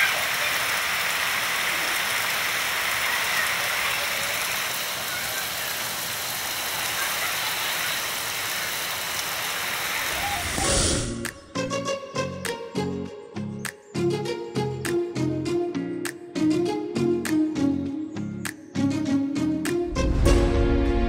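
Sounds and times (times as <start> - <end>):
steady rain falling: 0.0 - 10.6.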